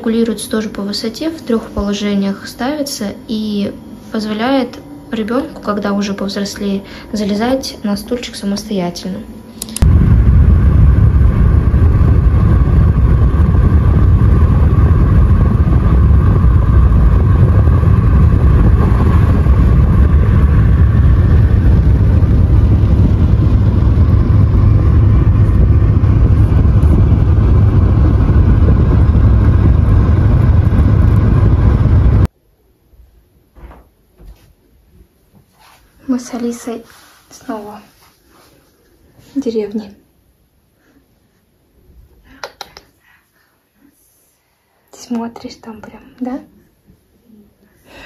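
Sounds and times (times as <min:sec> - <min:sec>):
car road and engine rumble: 0:09.8 - 0:32.3.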